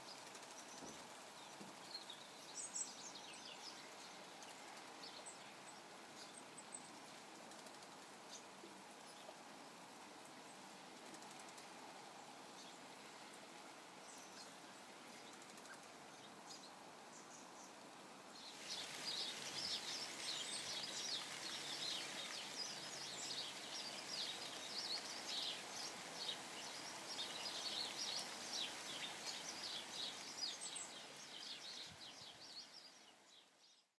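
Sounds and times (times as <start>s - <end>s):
small birds chirping: 0.0s - 34.0s
rain hissing: 17.8s - 33.3s.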